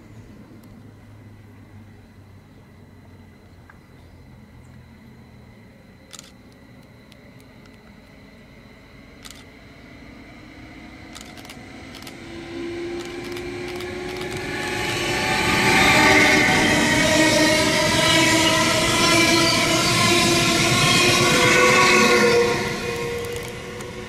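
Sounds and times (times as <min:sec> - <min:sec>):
train approaching: 0:05.2 - 0:24.0
steady tones: 0:11.2 - 0:17.2, 0:19.6 - 0:24.0.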